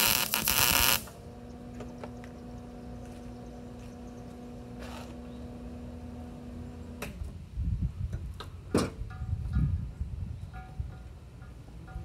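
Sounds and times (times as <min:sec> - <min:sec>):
welder humming: 0:00.0 - 0:03.2.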